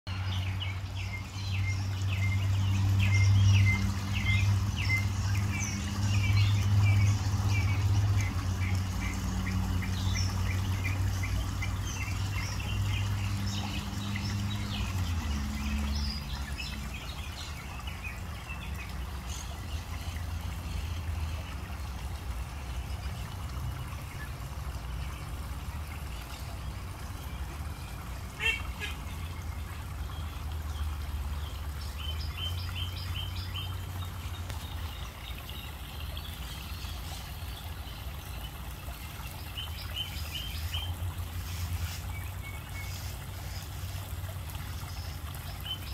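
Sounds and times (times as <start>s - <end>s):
birds chirping: 0.1s - 45.9s.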